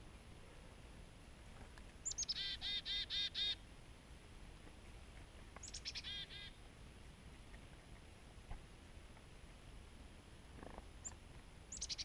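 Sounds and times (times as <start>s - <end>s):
chickadee calling: 2.0s - 3.6s, 5.6s - 6.6s, 11.0s - 12.0s.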